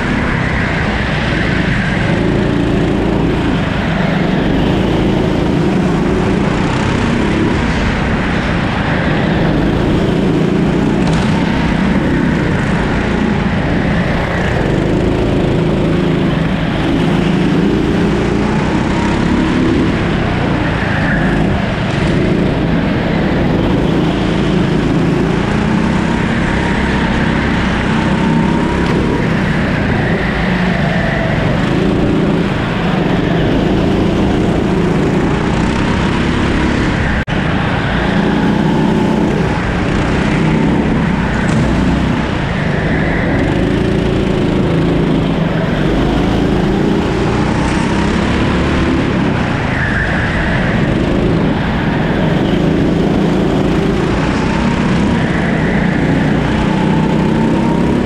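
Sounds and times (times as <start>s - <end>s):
kart engine revving: 0.0s - 58.0s.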